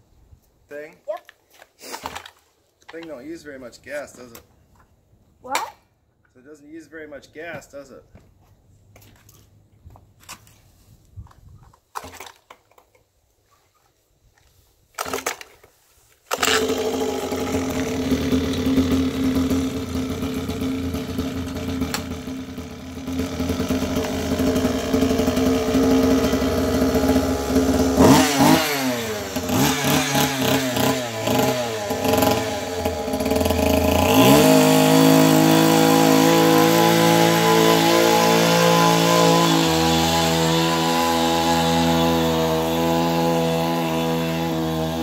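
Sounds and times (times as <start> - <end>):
small two-stroke engine revving: 16.3 - 45.0.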